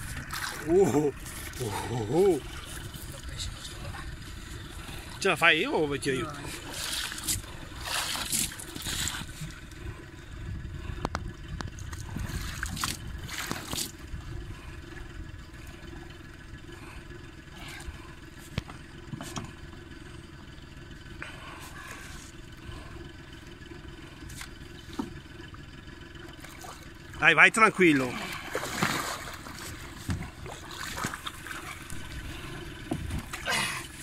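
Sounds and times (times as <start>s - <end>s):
fish thrashing and splashing: 0.0s - 5.2s, 6.4s - 9.8s, 11.8s - 14.5s, 26.1s - 27.2s, 28.0s - 34.0s
water sloshing: 0.0s - 10.2s, 10.8s - 19.8s, 21.3s - 34.0s
steady low hum: 0.0s - 34.0s.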